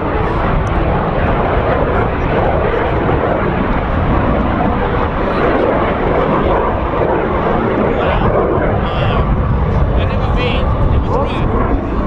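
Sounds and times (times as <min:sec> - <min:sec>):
jet aircraft flying overhead: 0:00.0 - 0:12.0.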